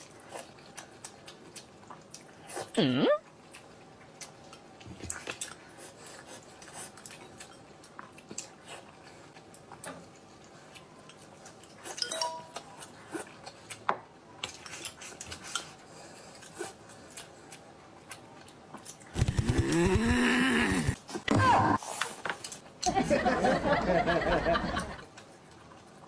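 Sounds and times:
chopsticks clinking against bowls: 11.9 - 12.8.

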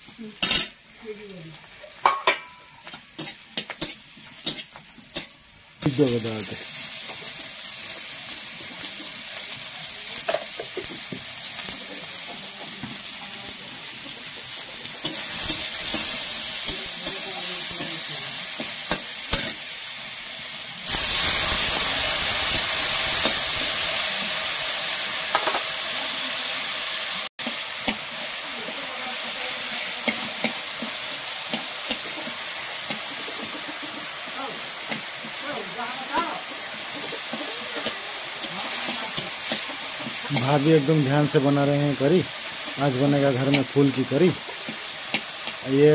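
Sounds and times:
tomatoes sizzling in hot oil: 0.0 - 45.9
metal spoon scraping a pan: 2.0 - 5.4, 36.0 - 42.0.

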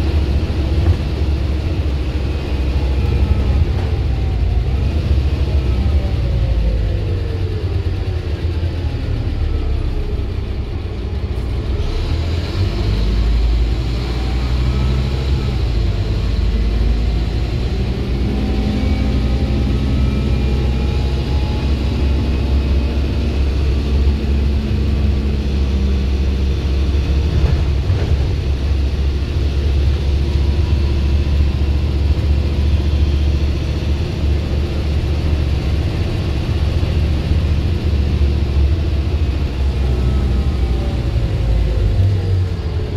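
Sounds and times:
engine whine rising in pitch: 0.0 - 27.8, 28.6 - 42.9
bus engine rumbling: 0.0 - 42.9.

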